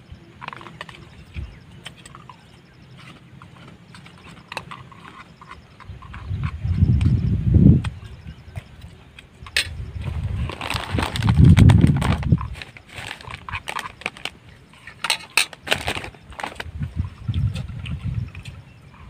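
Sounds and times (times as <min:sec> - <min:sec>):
plastic rustling: 0:10.0 - 0:16.9.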